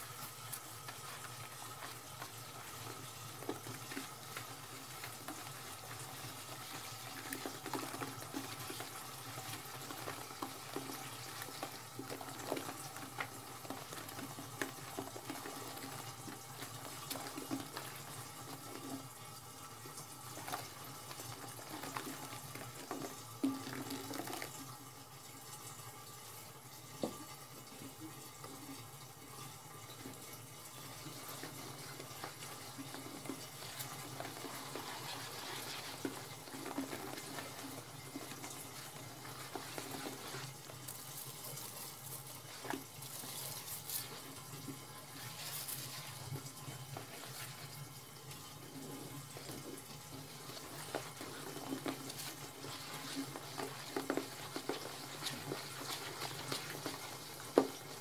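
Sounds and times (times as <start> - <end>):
toilet brush scrubbing in water: 0.0 - 58.0
water splashing: 30.8 - 58.0.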